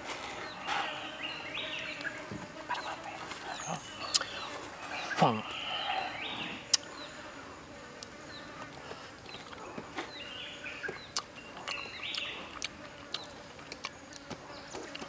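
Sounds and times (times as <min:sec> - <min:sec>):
insect buzzing: 0:00.0 - 0:15.0
chewing clicks and smacks: 0:04.0 - 0:04.3, 0:11.0 - 0:15.0.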